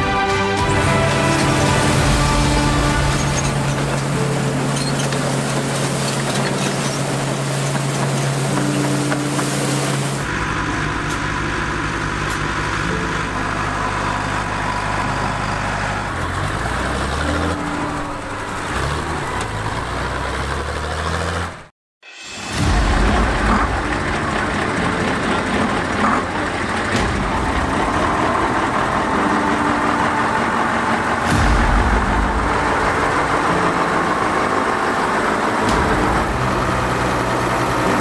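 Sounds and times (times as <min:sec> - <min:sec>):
farm machinery engines running: 0:00.0 - 0:21.7, 0:22.5 - 0:38.0.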